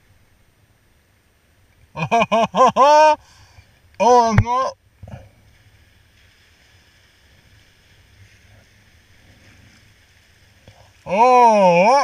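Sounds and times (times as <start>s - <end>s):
water against kayak hull: 1.6s - 12.0s
paddle dipping in water: 3.4s - 11.9s.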